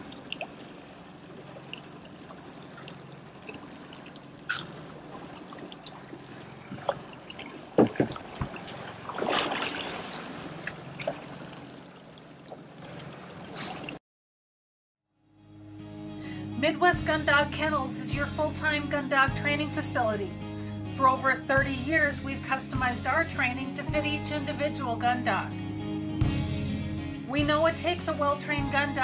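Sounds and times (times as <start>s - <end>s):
water lapping at hull: 0.0s - 14.0s.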